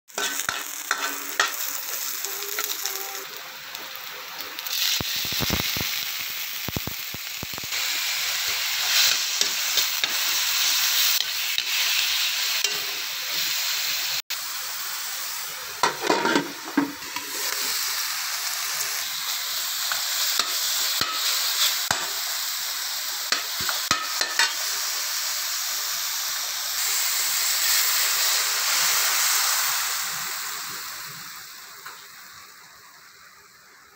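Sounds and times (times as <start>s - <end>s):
metal utensil scraping pan: 0.1s - 2.8s, 12.6s - 13.1s, 15.8s - 17.5s, 23.3s - 24.6s
food sizzling in hot oil: 0.1s - 33.9s.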